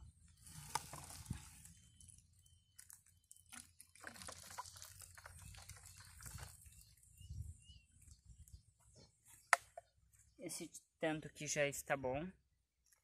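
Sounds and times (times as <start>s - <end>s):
liquid pouring into bottle: 0.5s - 7.0s.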